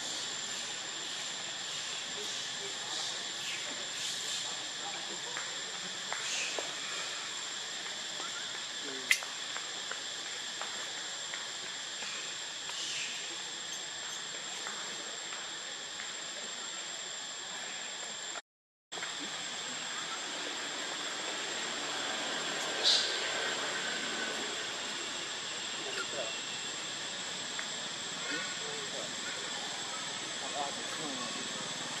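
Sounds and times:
even hiss: 0.0s - 18.4s, 19.0s - 32.0s
high insect whine: 0.0s - 18.4s, 19.0s - 32.0s
sharp click: 9.1s - 9.3s.

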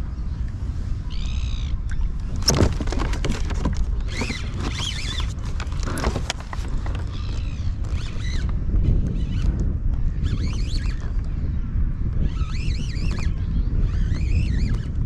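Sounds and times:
fishing reel drag whining: 10.1s - 11.2s, 12.2s - 15.0s.

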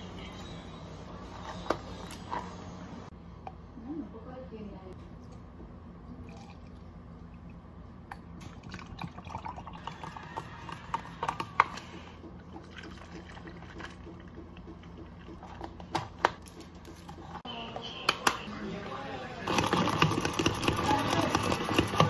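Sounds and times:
liquid pouring into jug: 8.4s - 11.3s, 12.3s - 15.2s.

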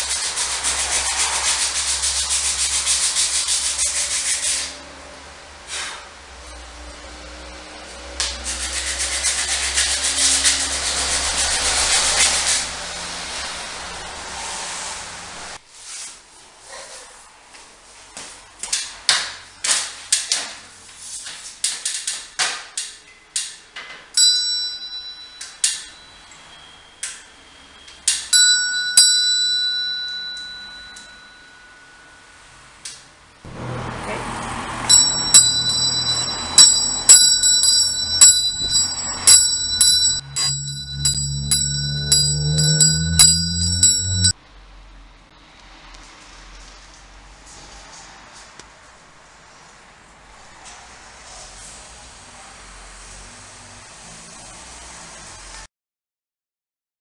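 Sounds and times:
hand sanding wood: 0.0s - 4.8s, 8.2s - 12.9s
spring doorbell ringing: 24.2s - 27.4s, 28.0s - 32.6s, 34.9s - 44.4s.

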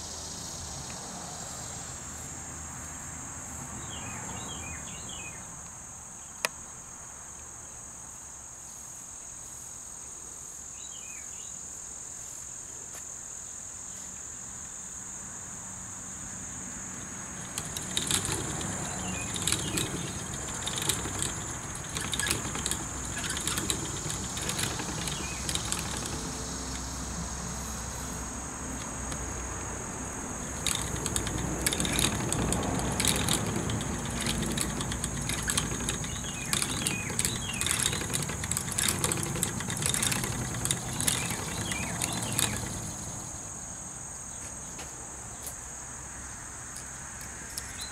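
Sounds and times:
insect chorus: 0.0s - 47.9s
spinning wheel rumbling and clicking: 17.2s - 27.8s, 30.2s - 43.3s.

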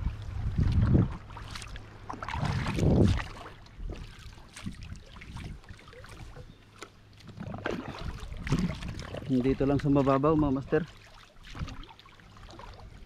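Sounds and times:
water lapping against boat hull: 0.0s - 13.0s.

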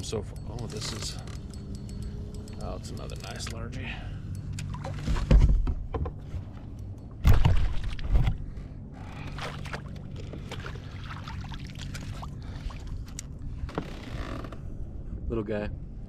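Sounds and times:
water splashing: 7.2s - 8.3s, 9.2s - 13.1s.

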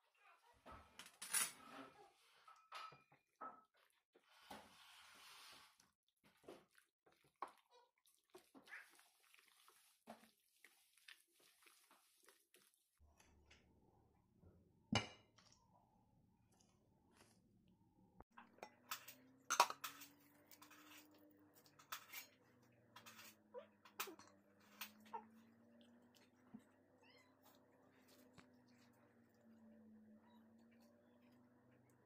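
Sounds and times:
spoon squelching in marinade: 6.7s - 12.8s
glass and utensils clinking: 18.4s - 25.3s.

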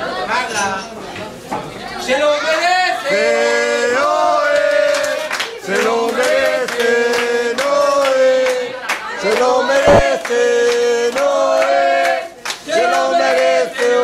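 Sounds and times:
group singing in unison: 3.1s - 14.0s.

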